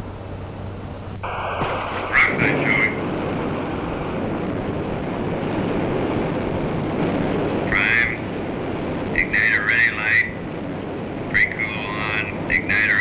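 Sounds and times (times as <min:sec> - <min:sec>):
jet aircraft cabin rumble: 0:00.0 - 0:13.0
voice over radio: 0:01.3 - 0:03.0, 0:07.6 - 0:08.3, 0:09.1 - 0:10.4, 0:11.3 - 0:13.0.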